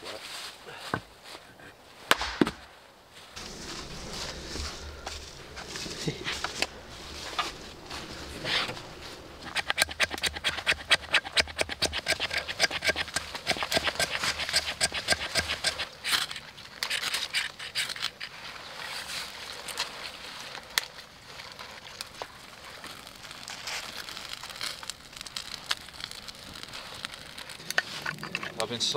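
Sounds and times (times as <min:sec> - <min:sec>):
striker scraping ferro rod: 0:06.4 - 0:18.1.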